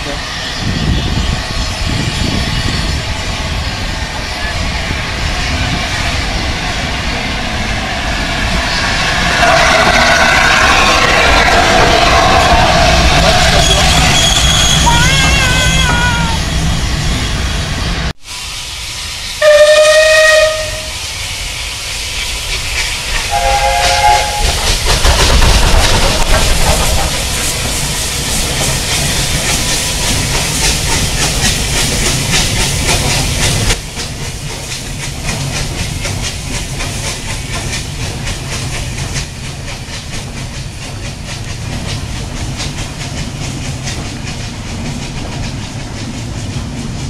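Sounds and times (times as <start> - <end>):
steam locomotive rumbling: 0.0 - 47.0
steam locomotive whistle: 12.2 - 16.7, 19.4 - 21.0, 23.1 - 24.8.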